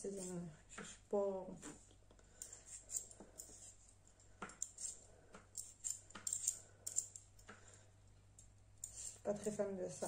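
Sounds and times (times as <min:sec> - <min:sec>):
peeler scraping potato skin: 0:04.6 - 0:07.2, 0:08.8 - 0:10.0.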